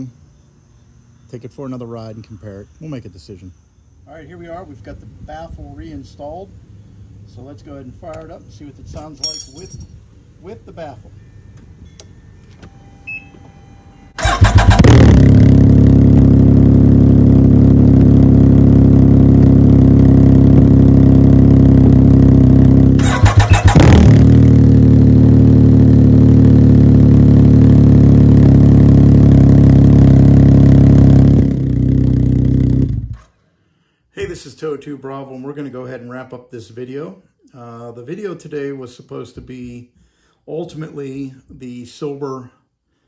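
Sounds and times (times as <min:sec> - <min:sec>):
engine cranking and starting: 0:14.2 - 0:15.4, 0:23.0 - 0:24.5.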